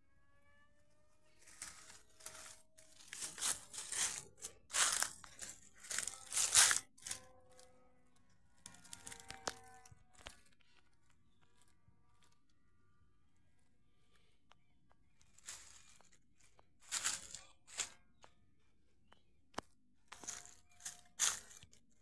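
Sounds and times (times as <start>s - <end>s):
footsteps crunching dry leaves: 1.5s - 7.2s, 15.4s - 18.0s, 20.1s - 21.8s.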